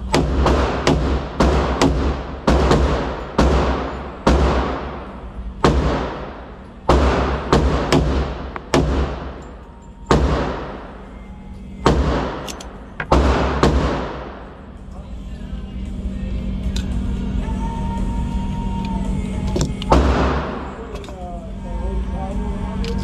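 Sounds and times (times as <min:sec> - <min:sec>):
pistol shots echoing indoors: 0:00.0 - 0:14.7, 0:19.9 - 0:20.8.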